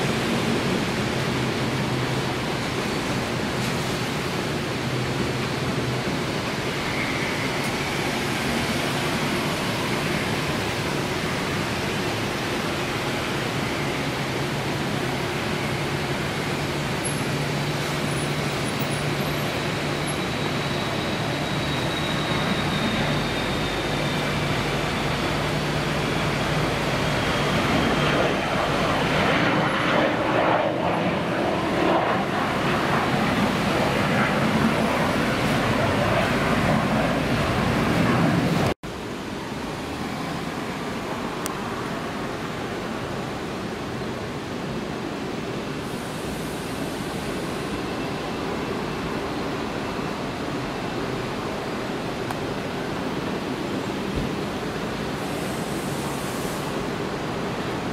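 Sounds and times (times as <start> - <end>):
turbine whine: 0.0 - 42.3
jet engine roar: 0.0 - 57.9.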